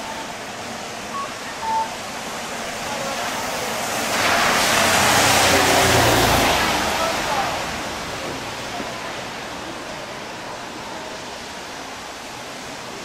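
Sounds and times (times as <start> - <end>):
rain falling: 0.0 - 13.0
brief high beep: 1.1 - 1.9.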